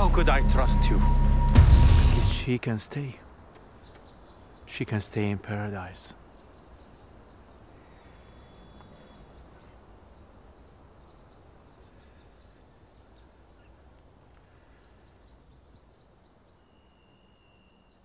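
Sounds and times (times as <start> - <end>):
faint high bird chirps: 6.2 - 18.0.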